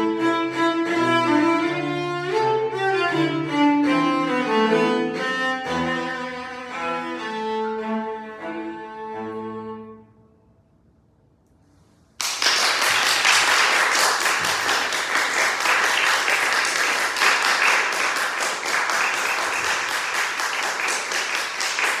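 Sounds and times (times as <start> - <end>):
audience applause: 12.2 - 22.0.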